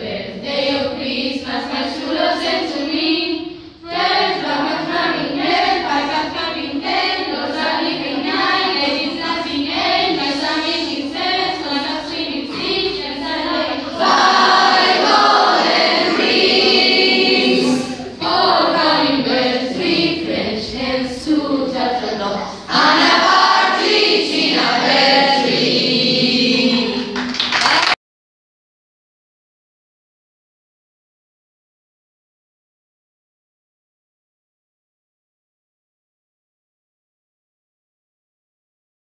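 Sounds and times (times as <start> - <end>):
children singing in chorus: 0.0 - 27.3.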